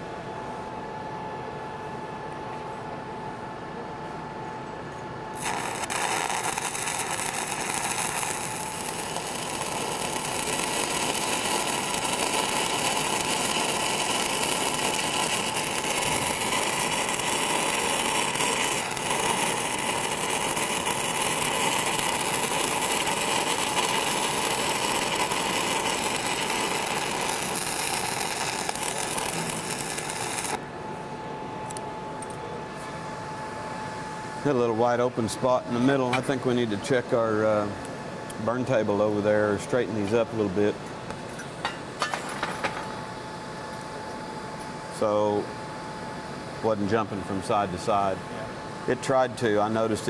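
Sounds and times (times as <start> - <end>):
welding arc crackle and hiss: 5.3 - 30.6, 34.5 - 40.8, 42.0 - 50.0.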